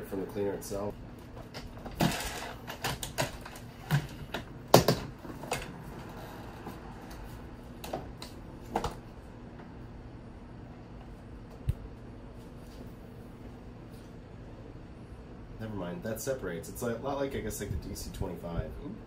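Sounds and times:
plastic parts clicking and clacking: 0:01.5 - 0:05.7.

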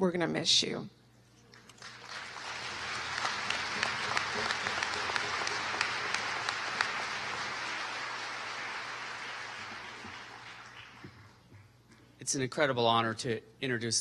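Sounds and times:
audience applauding: 0:01.6 - 0:11.6.

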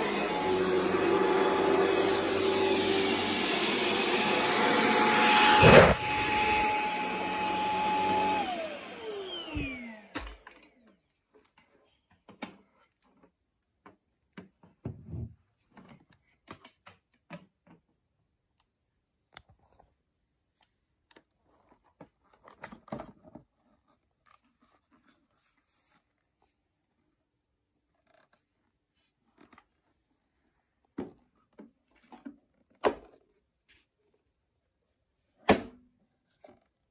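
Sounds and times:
stick vacuum motor whine: 0:00.0 - 0:10.8.

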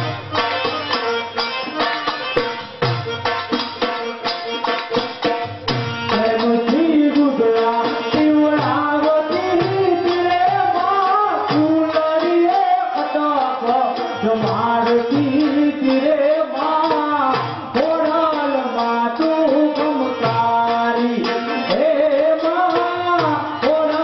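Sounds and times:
hand drums beating: 0:00.0 - 0:24.0
person singing into a microphone: 0:05.9 - 0:24.0.

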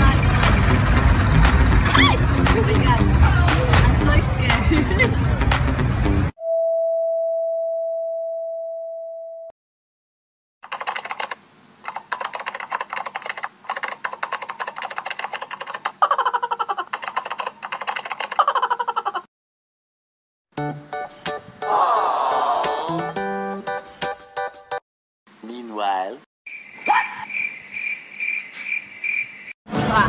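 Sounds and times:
keyboard typing clicks: 0:10.6 - 0:16.0, 0:16.8 - 0:18.5.

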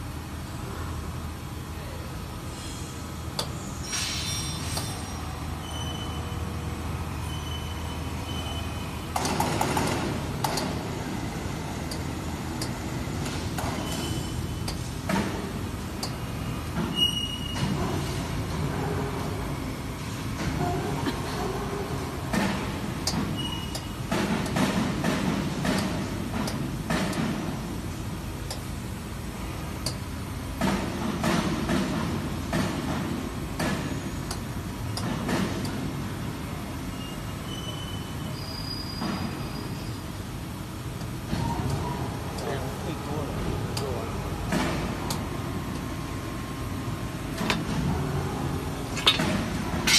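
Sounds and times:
bending machine rumbling: 0:00.0 - 0:49.9
metallic scraping and clatter: 0:48.9 - 0:49.9.

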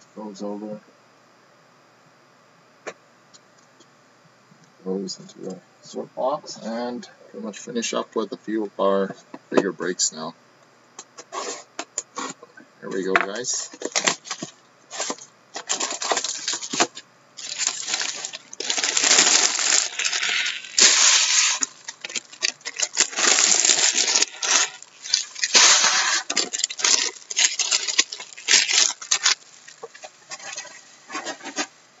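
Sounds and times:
plastic shrink wrap crinkling: 0:13.4 - 0:31.7.

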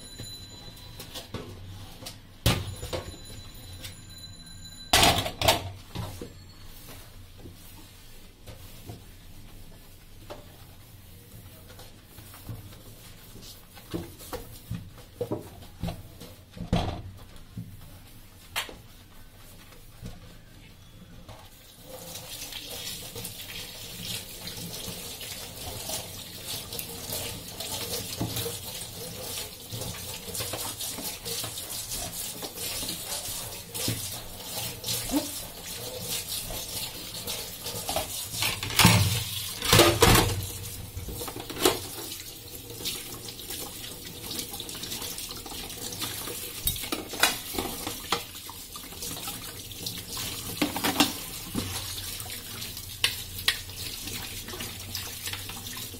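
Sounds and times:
hands scrubbing dishes: 0:21.5 - 0:55.9
tap water running into sink: 0:21.8 - 0:55.9.

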